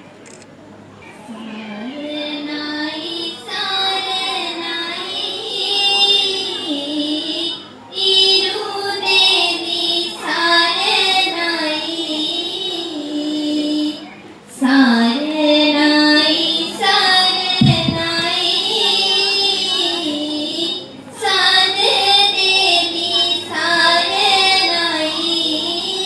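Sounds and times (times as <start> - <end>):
woman singing: 1.3 - 14.0, 14.6 - 26.0
children singing in chorus: 1.3 - 26.0
low thump: 17.6 - 18.4.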